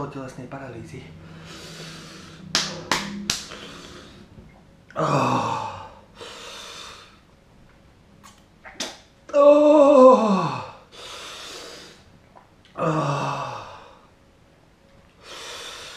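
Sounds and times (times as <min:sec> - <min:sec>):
man breathing hard: 0:01.2 - 0:02.5, 0:03.4 - 0:04.3, 0:05.0 - 0:07.2, 0:10.4 - 0:12.1, 0:15.2 - 0:15.9
man groaning: 0:05.0 - 0:06.0, 0:09.3 - 0:10.8, 0:12.8 - 0:13.8.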